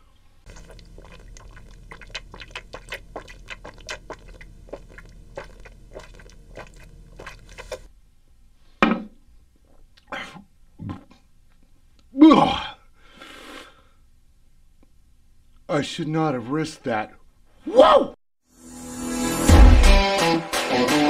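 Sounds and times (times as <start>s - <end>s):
person gulping: 0.5s - 7.9s.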